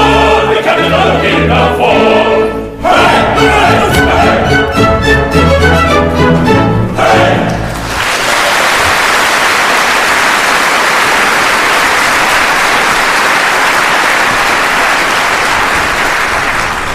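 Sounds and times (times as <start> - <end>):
audience applauding: 7.6 - 16.9.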